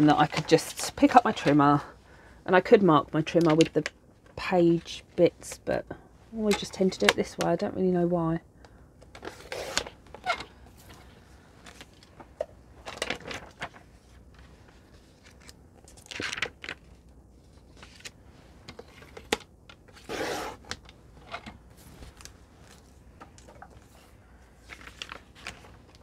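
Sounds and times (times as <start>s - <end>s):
vellum sheet rustling: 21.6s - 26.0s.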